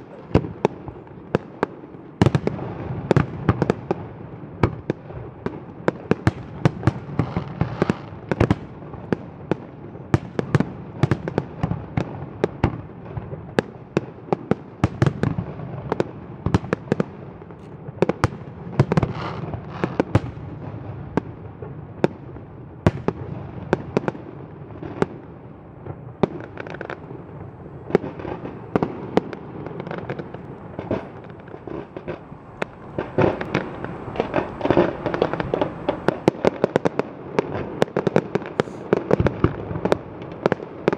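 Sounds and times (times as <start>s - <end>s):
fireworks bursting with sharp bangs: 0.0s - 40.9s
low rumble: 30.2s - 36.4s.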